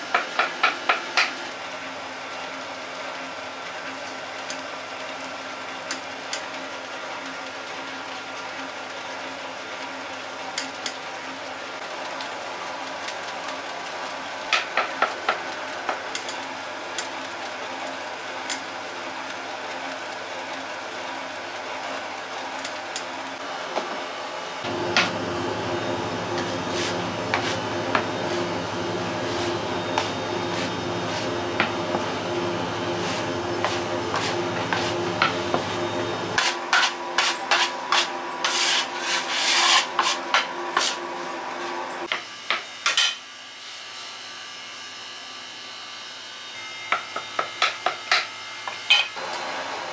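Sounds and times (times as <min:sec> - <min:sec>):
bakery machinery humming: 0:00.0 - 0:49.9
bench scraper scraping worktop: 0:26.4 - 0:28.5, 0:29.2 - 0:32.1, 0:32.9 - 0:41.0, 0:42.1 - 0:44.0.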